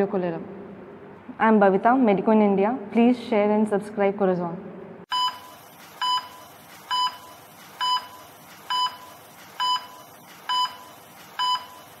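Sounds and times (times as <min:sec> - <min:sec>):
short electronic beep: 0:05.1 - 0:12.0
steady hiss: 0:05.3 - 0:12.0.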